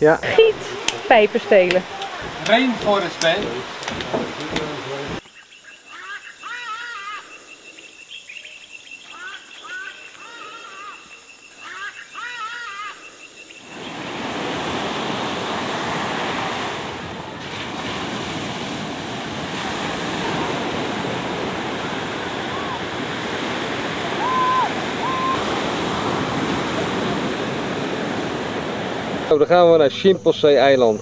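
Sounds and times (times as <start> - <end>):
sea surf breaking on beach: 0.3 - 5.2, 13.6 - 29.4
bird calls: 5.2 - 14.2, 24.2 - 25.5.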